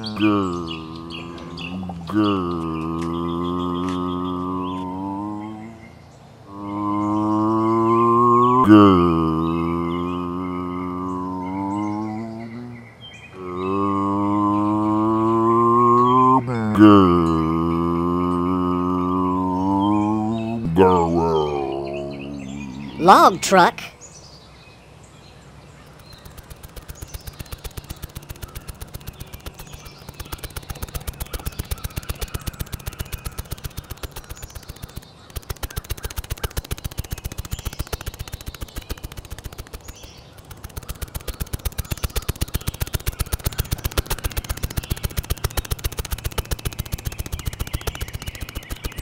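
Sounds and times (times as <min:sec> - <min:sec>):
cartoon car engine rattle: 0:00.0 - 0:04.4, 0:25.9 - 0:49.0
birds chirping: 0:00.0 - 0:49.0.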